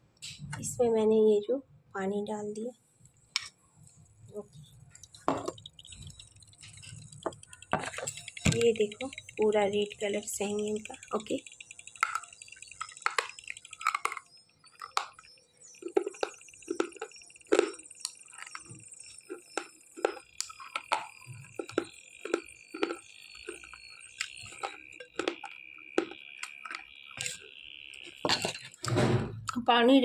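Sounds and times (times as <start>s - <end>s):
slate pencil crunching in mouth: 15.8s - 18.6s.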